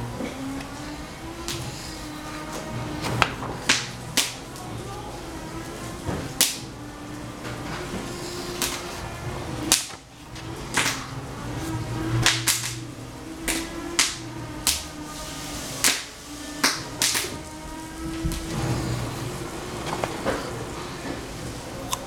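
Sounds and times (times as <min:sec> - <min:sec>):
faint music: 0:00.0 - 0:22.0
sharp clacks and snaps: 0:02.6 - 0:04.7, 0:06.1 - 0:06.7, 0:09.6 - 0:10.0, 0:12.2 - 0:15.0, 0:15.8 - 0:17.6.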